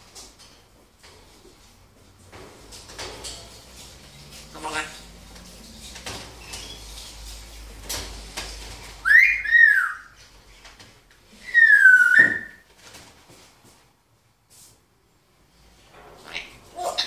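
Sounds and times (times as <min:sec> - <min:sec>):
parrot whistling: 0:09.0 - 0:10.2, 0:11.4 - 0:12.6.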